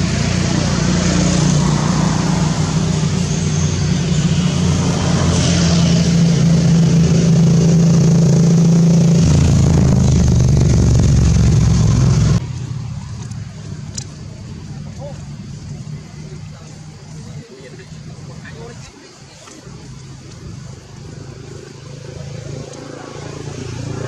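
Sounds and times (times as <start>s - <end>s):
vehicle engine running: 0.0s - 24.0s.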